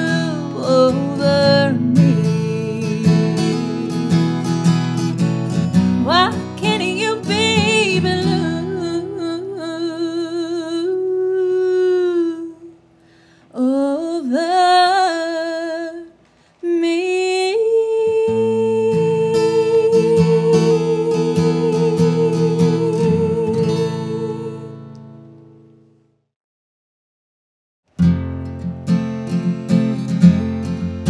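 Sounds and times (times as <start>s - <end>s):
woman singing with vibrato: 0.0s - 4.0s, 5.9s - 12.8s, 13.5s - 24.9s
acoustic guitar strumming: 0.0s - 9.7s, 18.3s - 25.9s, 27.9s - 31.0s.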